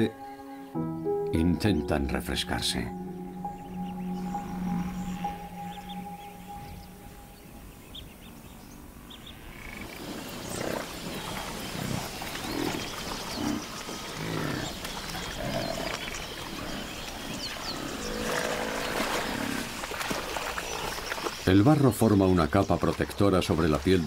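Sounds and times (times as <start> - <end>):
birds chirping: 0.0 - 24.0
buffalo grunting and lowing: 9.8 - 21.0.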